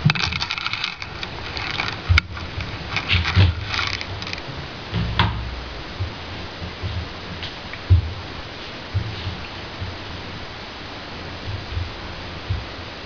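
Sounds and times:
plastic clicks and scraping: 0.0 - 4.5.

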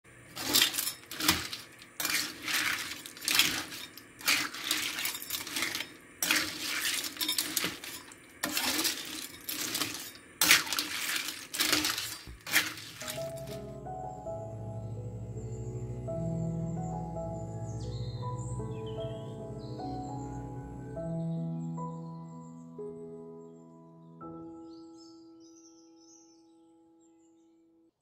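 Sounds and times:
snail shells clattering in a wok: 0.3 - 13.6.

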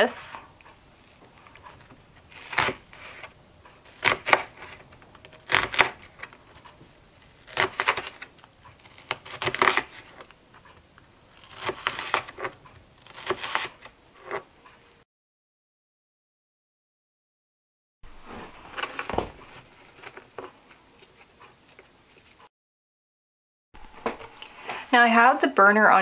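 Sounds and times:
knife slicing onion: 0.7 - 14.5.

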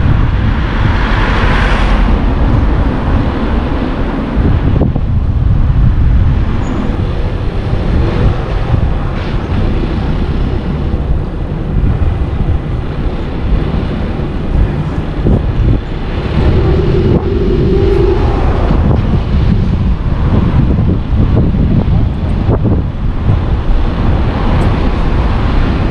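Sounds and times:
car road and engine rumble: 0.0 - 25.9
wind buffeting microphone: 0.0 - 25.9
steady hum: 14.9 - 20.0.

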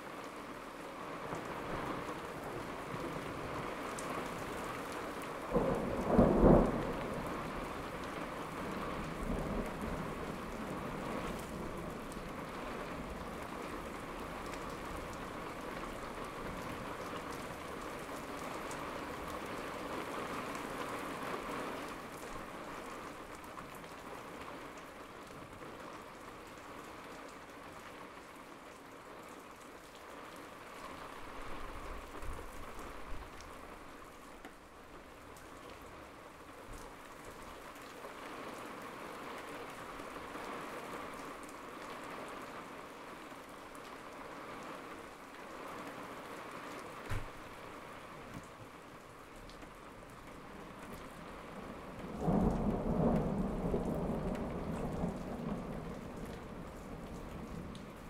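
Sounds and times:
steady rain: 0.0 - 58.0
thunder clap and rumble: 5.5 - 12.3, 51.9 - 57.8.

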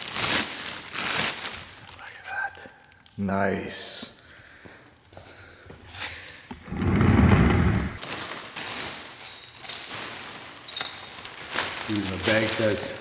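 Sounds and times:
plastic bag crinkling: 0.0 - 2.2, 8.0 - 13.0.

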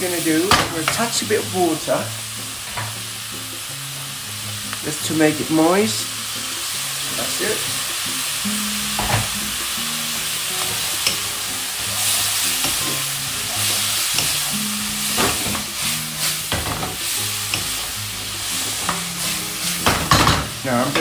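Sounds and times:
food sizzling in a wok: 0.0 - 21.0
spatula scraping a pan: 10.6 - 20.2.

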